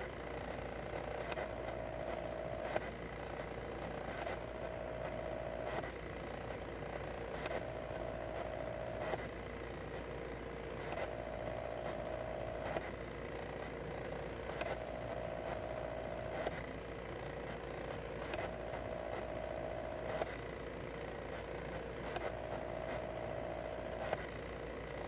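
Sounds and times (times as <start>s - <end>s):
stepper motors whining: 10.7s - 25.0s.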